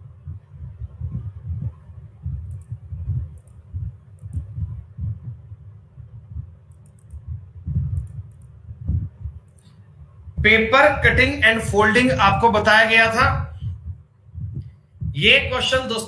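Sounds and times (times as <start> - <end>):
faint steady hum: 0.0 - 16.0
soft low thumps: 0.0 - 16.0
light sharp clicks: 2.4 - 3.6, 4.2 - 4.5, 6.7 - 7.2, 7.9 - 8.6.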